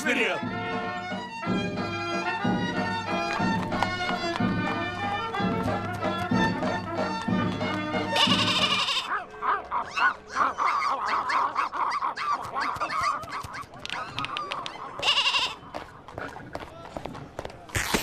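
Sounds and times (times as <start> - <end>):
goat bleating: 8.1 - 9.1, 15.0 - 15.6.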